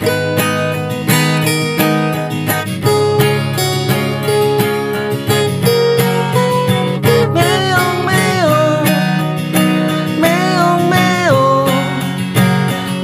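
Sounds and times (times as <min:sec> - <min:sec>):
acoustic guitar strumming: 0:00.0 - 0:13.0
pitch-bending melody line: 0:05.6 - 0:11.9.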